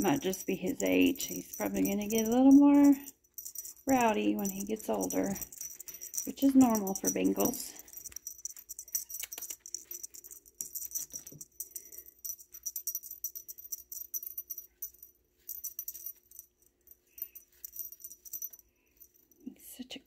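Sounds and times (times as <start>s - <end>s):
cat toy jingling and rattling: 0.0s - 19.5s.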